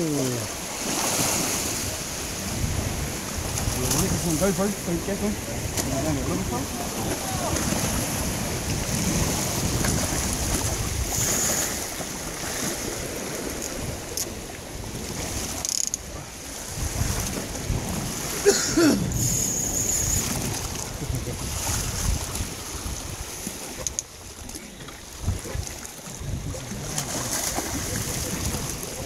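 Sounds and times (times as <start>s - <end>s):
sea waves against rocks: 0.0s - 29.0s
wind buffeting microphone: 0.0s - 29.0s.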